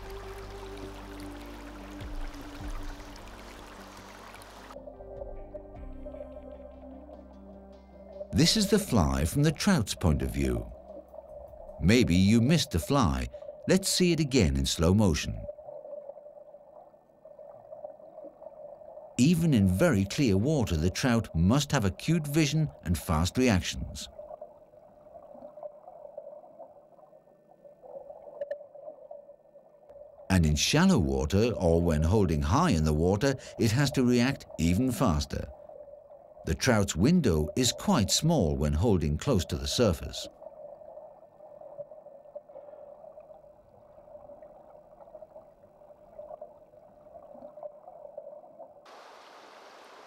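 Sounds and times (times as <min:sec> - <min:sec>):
underwater river gurgling: 0:00.0 - 0:05.3, 0:08.0 - 0:50.0
steady hiss: 0:48.9 - 0:50.0.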